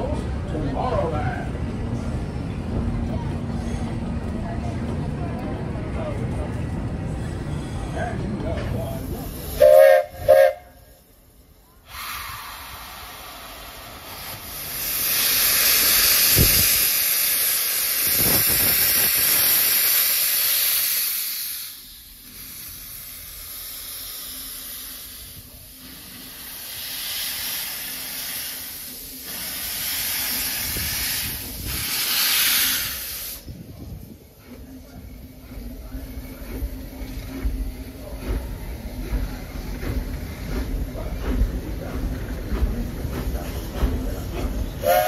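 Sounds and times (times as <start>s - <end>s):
steam locomotive hissing steam: 8.7s - 45.0s.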